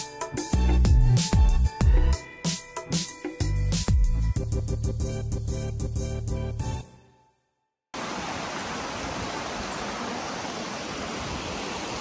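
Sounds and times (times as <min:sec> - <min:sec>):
background music: 0:00.0 - 0:07.3
stream running over rocks: 0:08.0 - 0:12.0.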